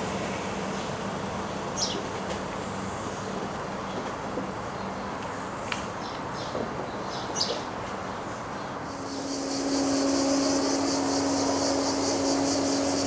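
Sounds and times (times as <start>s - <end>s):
cicadas singing: 8.2s - 13.0s
steady low hum: 8.8s - 13.0s
light hiss: 8.9s - 13.0s.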